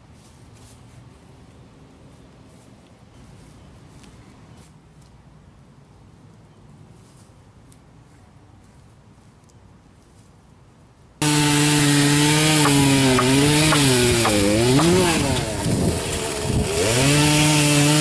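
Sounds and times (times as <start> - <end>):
chainsaw cutting through log: 11.2 - 18.0.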